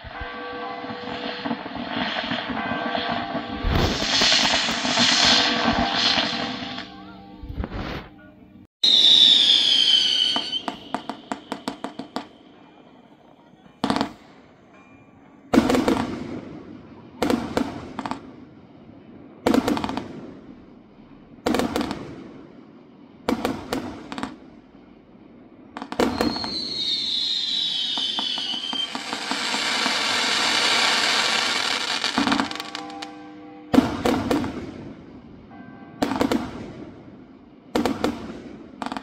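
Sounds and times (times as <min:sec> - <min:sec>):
firework bangs: 0:00.0 - 0:08.2, 0:08.8 - 0:13.0, 0:13.8 - 0:14.4, 0:15.5 - 0:18.5, 0:19.4 - 0:22.6, 0:23.2 - 0:24.8, 0:25.6 - 0:39.0
firework hissing whistle: 0:00.0 - 0:08.2, 0:08.8 - 0:12.6, 0:26.0 - 0:34.5.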